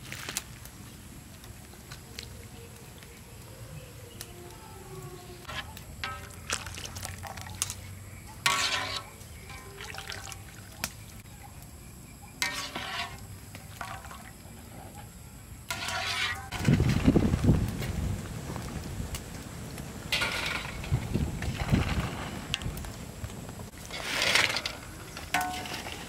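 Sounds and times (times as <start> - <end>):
water dripping from strainer: 9.6 - 10.9.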